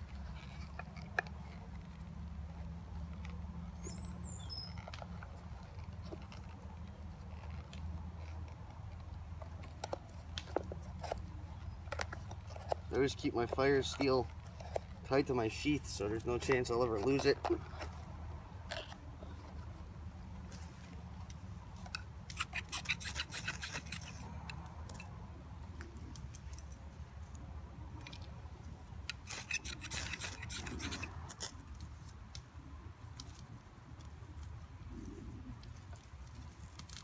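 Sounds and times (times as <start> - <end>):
fire steel rasping strokes: 21.8 - 25.1, 29.1 - 31.8.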